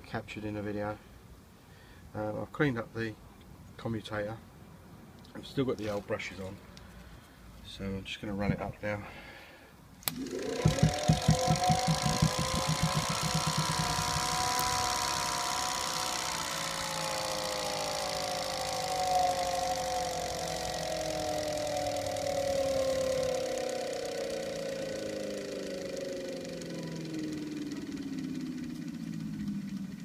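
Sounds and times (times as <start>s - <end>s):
electric motor whirring howl: 10.1s - 30.0s.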